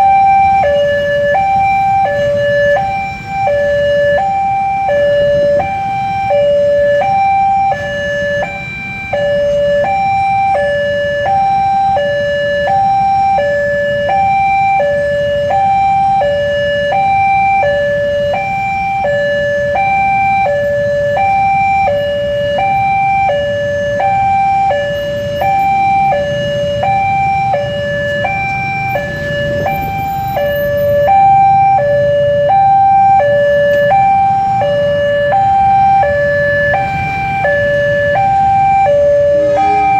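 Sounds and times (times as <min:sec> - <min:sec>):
two-tone crossing alarm: 0:00.0 - 0:39.9
motorcycles idling: 0:38.0 - 0:39.9.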